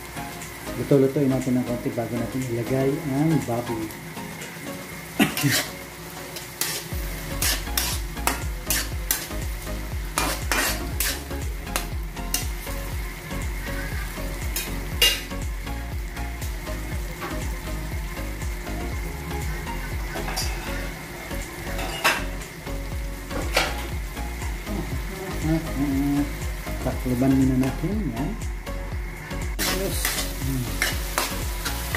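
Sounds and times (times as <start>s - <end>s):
vegetables sizzling in oil: 0.0s - 31.9s
spatula scraping and knocking pan: 6.4s - 9.3s, 10.1s - 12.6s.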